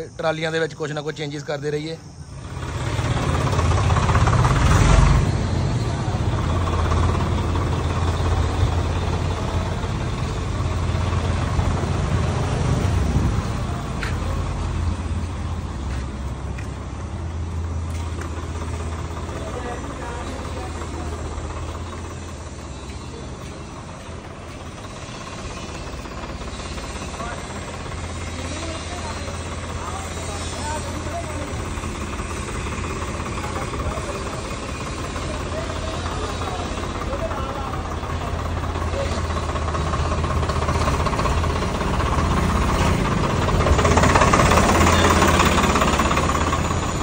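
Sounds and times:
steady background noise: 0.0s - 47.0s
vehicle engine running: 0.0s - 47.0s.

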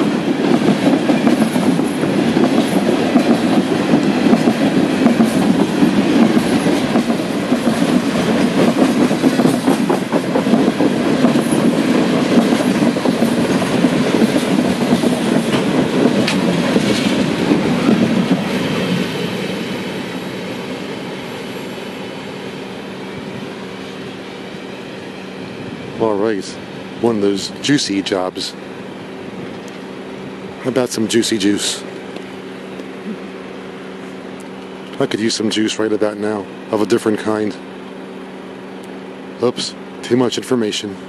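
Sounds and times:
freight train rumbling past: 0.0s - 41.0s.

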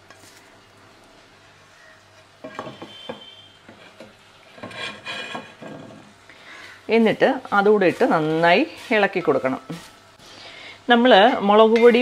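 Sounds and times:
wooden spatula scraping metal pan: 1.8s - 6.2s, 7.4s - 10.0s.

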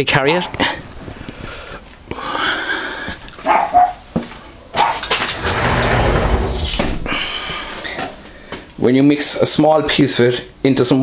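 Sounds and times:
dog barking: 3.4s - 4.0s, 4.7s - 5.0s
rustling and scraping: 4.1s - 8.7s.

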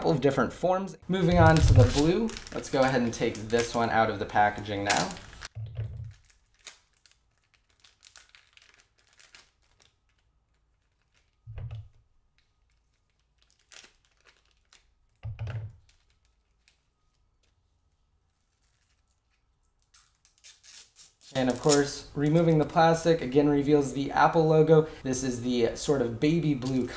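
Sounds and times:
plastic packaging crinkling: 1.2s - 23.4s, 26.4s - 26.9s
knife cutting plastic: 18.5s - 22.6s.

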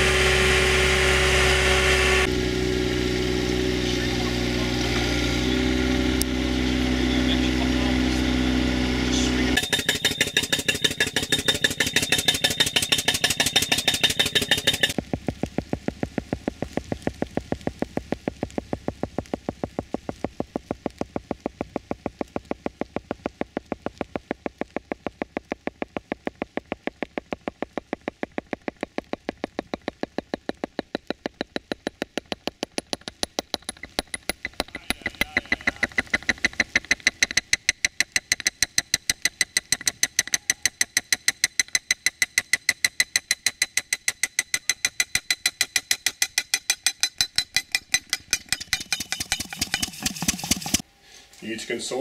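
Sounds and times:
engine running: 0.0s - 45.8s, 47.1s - 51.9s
pneumatic tool hammering ground: 9.5s - 50.9s.

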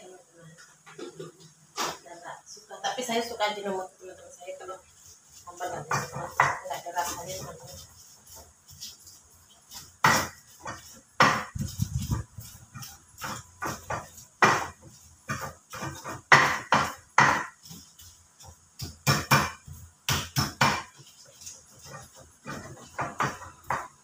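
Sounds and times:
pestle knocking in stone mortar: 5.8s - 6.8s, 9.7s - 24.0s.

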